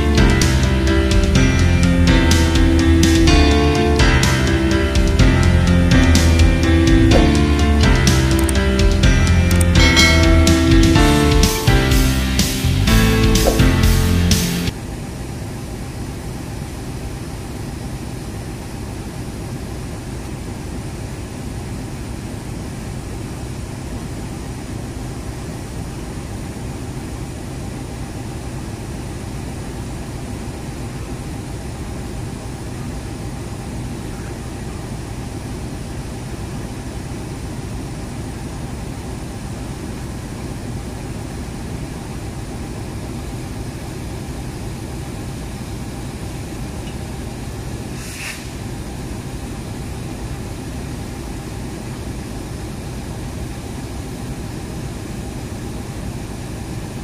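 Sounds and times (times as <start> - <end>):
idling train engines drone: 0.0 - 57.0
light hiss: 47.9 - 48.6.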